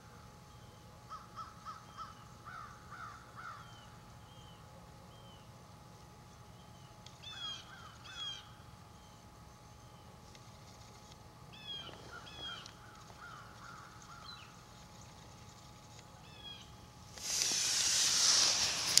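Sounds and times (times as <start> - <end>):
camera rustling against fabric: 17.2 - 19.0.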